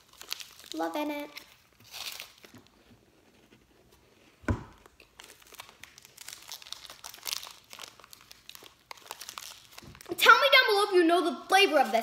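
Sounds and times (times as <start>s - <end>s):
snack packet crinkling: 0.0s - 2.7s, 4.8s - 10.2s.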